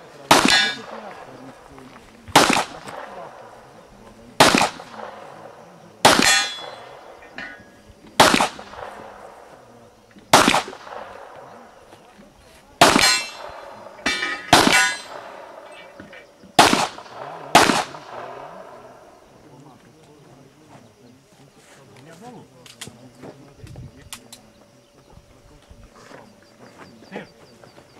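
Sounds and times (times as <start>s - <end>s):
handgun shots: 0.3s - 1.3s, 2.3s - 3.5s, 4.4s - 5.3s, 6.0s - 7.5s, 8.2s - 9.3s, 10.3s - 11.4s, 12.8s - 16.0s, 16.6s - 18.8s.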